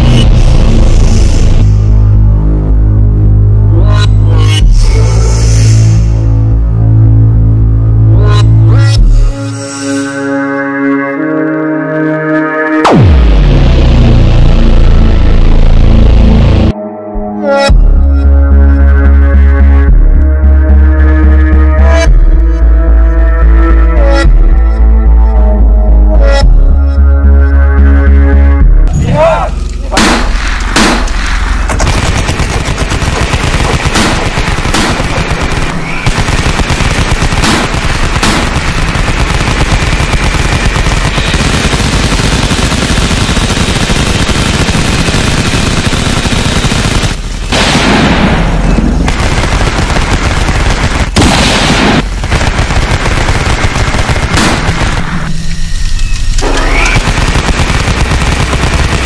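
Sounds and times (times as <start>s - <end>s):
single gunshots: 29.9s - 55.3s
machine-gun fire: 30.0s - 55.5s, 56.4s - 59.0s.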